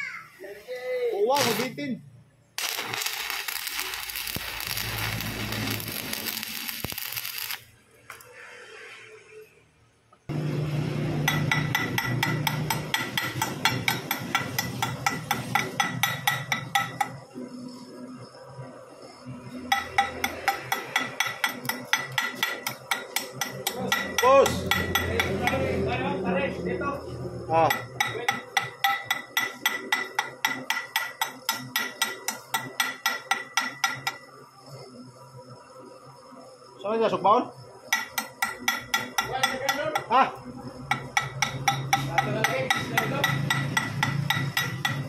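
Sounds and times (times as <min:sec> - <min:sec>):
hammer striking metal: 0:11.2 - 0:17.2, 0:19.7 - 0:25.8, 0:27.6 - 0:34.2, 0:37.9 - 0:40.1, 0:40.9 - 0:45.0.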